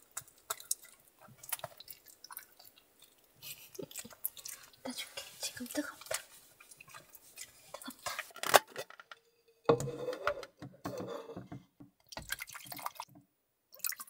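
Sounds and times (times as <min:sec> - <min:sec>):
water pouring into plastic tank: 0:12.0 - 0:14.0.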